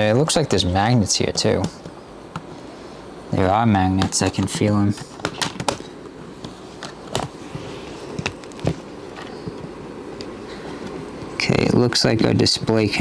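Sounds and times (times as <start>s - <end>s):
steady low hiss: 0.0s - 13.0s
laptop keyboard cover clicks: 5.2s - 7.4s.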